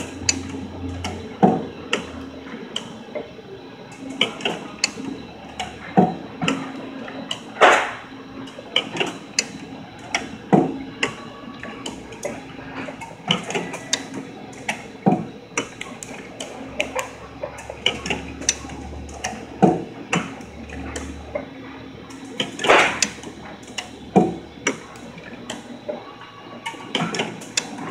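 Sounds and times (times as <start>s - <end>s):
rapid mechanical clicking: 22.0s - 25.7s, 26.6s - 27.9s.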